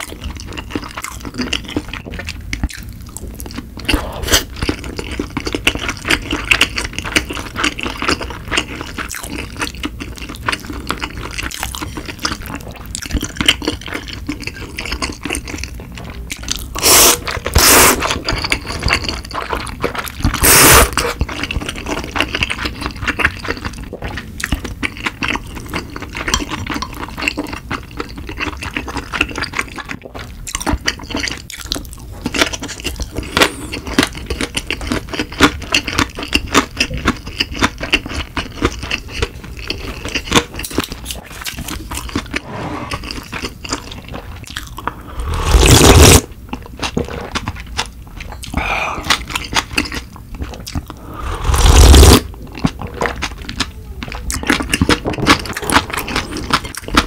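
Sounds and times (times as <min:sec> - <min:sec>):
chewing with mouth clicks: 0:00.0 - 0:57.0
loud slurp of broth: 0:03.9 - 0:04.5, 0:16.8 - 0:18.0, 0:20.4 - 0:21.2, 0:42.4 - 0:43.1, 0:45.0 - 0:46.3, 0:50.9 - 0:52.3.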